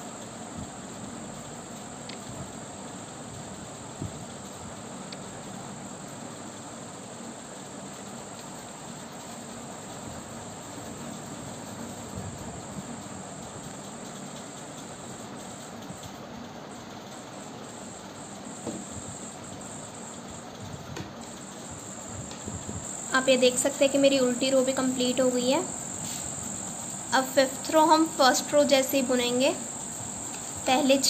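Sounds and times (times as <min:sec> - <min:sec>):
high-pitched background hiss: 0:00.0 - 0:31.0
soft knock: 0:18.6 - 0:18.8.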